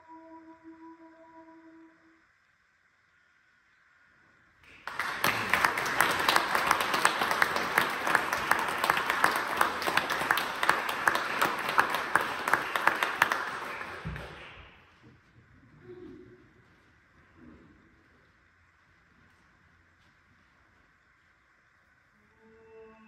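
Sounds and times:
audience applauding: 4.6 - 14.9.

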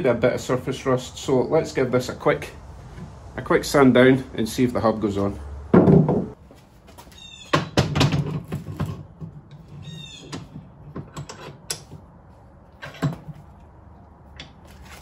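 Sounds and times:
metal clanks and knocks: 5.7 - 6.4, 7.5 - 12.0, 12.8 - 13.5
high squeaks: 9.8 - 10.4.

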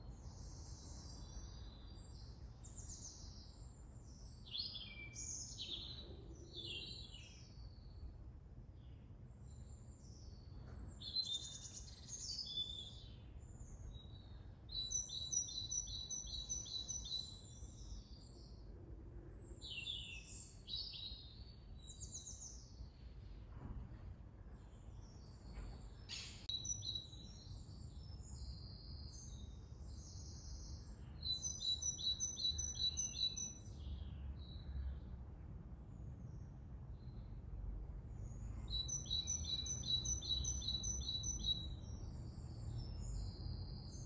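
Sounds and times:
songbirds chirping: 0.0 - 44.0
faint low rumble: 21.3 - 26.1
bird trill: 26.1 - 27.6, 38.7 - 41.8.

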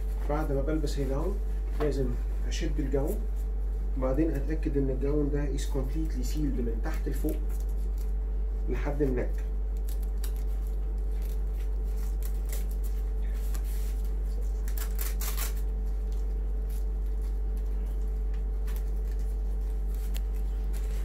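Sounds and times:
low electrical hum: 0.0 - 21.0
protective coverall rustling: 9.8 - 21.0.

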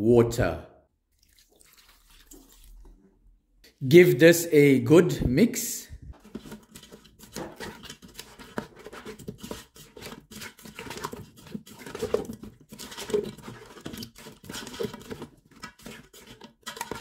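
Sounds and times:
spatula scraping a pot: 6.2 - 17.0.

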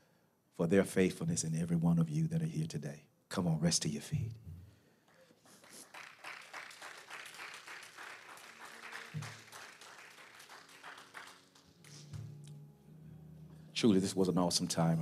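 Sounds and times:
congregation clapping: 5.0 - 12.6
held musical notes: 9.2 - 15.0.

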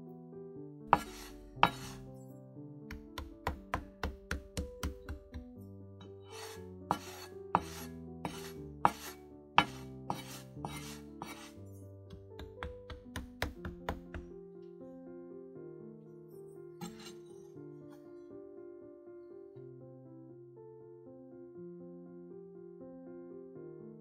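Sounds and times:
gentle piano music: 0.0 - 24.0
knife scraping plastic cutting board: 1.0 - 2.0, 6.3 - 11.6, 16.8 - 17.2.

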